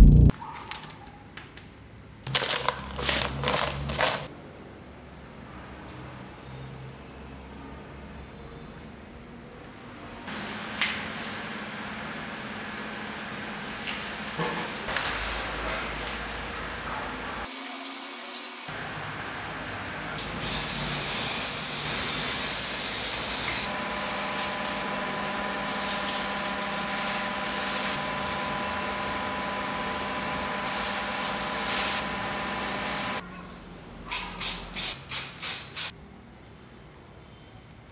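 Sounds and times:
plastic sheet scratching and rustling: 2.3 - 4.3
aerosol spray can hissing: 34.1 - 35.9.

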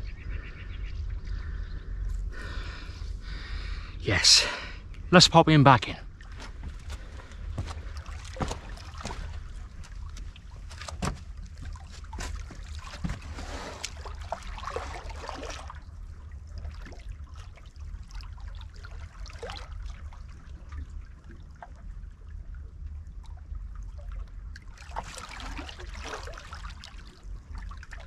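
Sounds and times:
steady low rumble: 0.0 - 24.8
water lapping against rocks: 6.0 - 22.4, 23.2 - 28.0
splashes and knocks: 6.1 - 21.9, 24.0 - 28.0.

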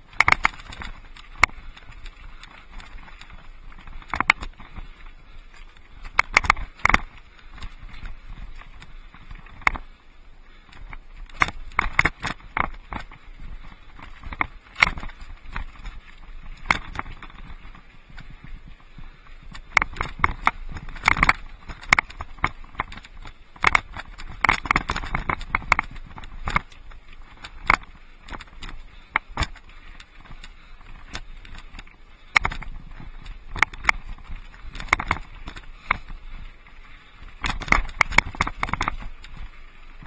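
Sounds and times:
bike clattering over rocks: 0.0 - 18.5, 19.1 - 40.0.

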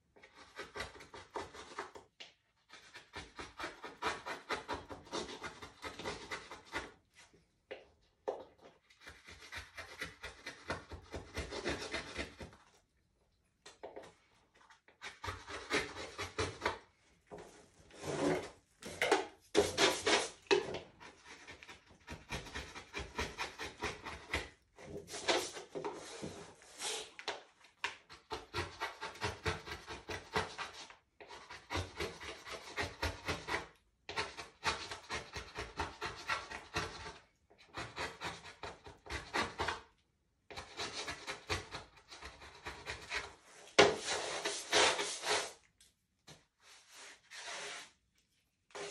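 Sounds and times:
eraser scrubbing on wood: 40.6 - 45.7.

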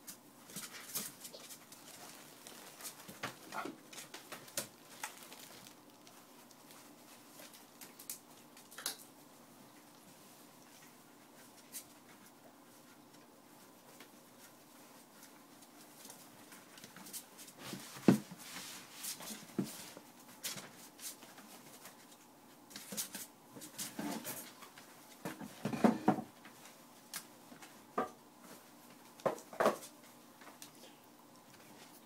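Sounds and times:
puppies scrabbling in plastic pool: 0.4 - 8.8.

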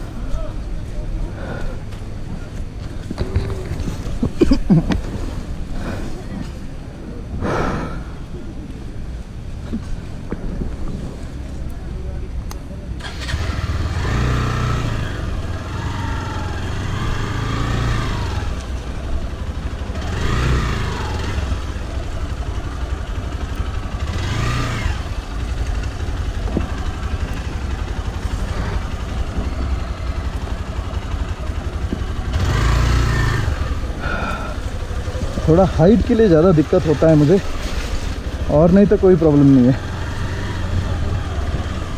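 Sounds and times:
motorcycle engine revving: 13.0 - 41.9.

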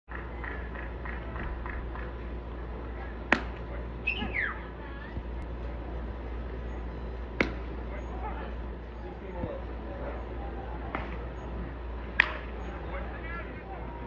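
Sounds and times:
baseball popping into mitt: 3.3 - 3.6, 7.4 - 7.6.

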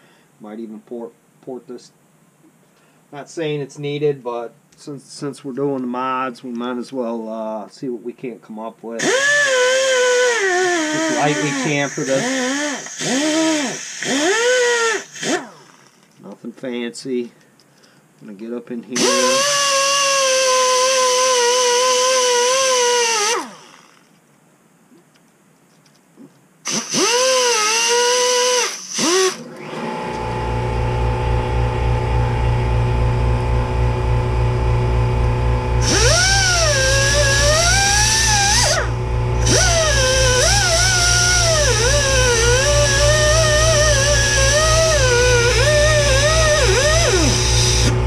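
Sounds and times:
pneumatic die grinder whining: 9.0 - 16.1, 19.0 - 24.1, 26.7 - 31.2, 35.1 - 48.0.

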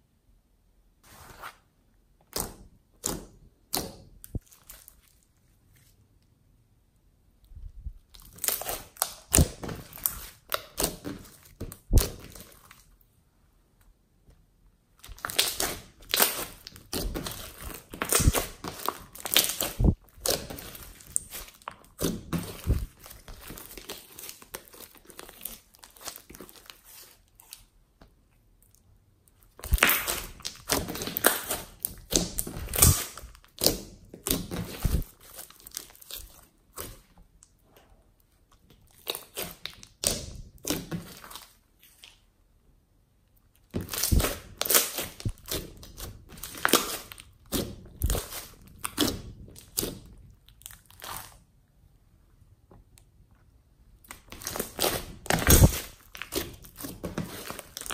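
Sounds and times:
hands squishing slime: 2.3 - 6.2, 7.8 - 13.0, 14.9 - 42.3, 43.4 - 51.6, 53.9 - 57.9.

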